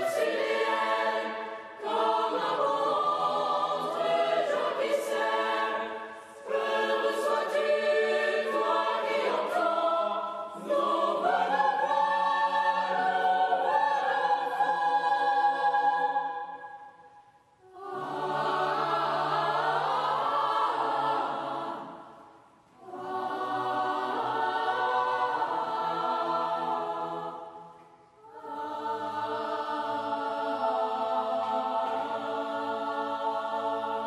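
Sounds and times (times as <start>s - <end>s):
boys' choir singing: 0.0s - 16.8s, 17.7s - 34.0s.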